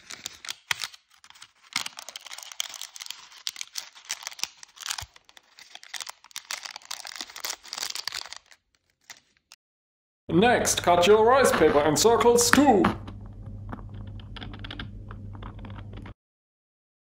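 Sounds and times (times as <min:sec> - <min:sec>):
paper crinkling and crackling: 0:00.0 - 0:09.6.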